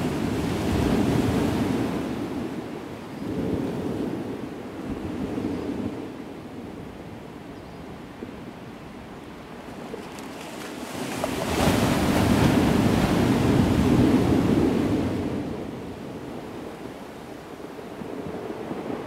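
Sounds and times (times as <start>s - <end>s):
surf waves breaking on sand: 0.0s - 4.3s, 9.5s - 19.0s
wind on microphone: 0.0s - 19.0s.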